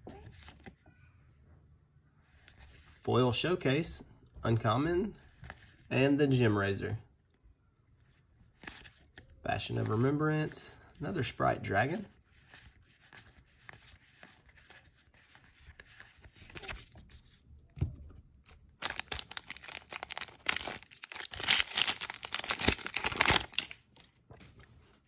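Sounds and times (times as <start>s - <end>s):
cards rustling and clicking: 8.5s - 10.0s, 11.9s - 25.0s
foil wrapper tearing and crinkling: 18.7s - 23.8s.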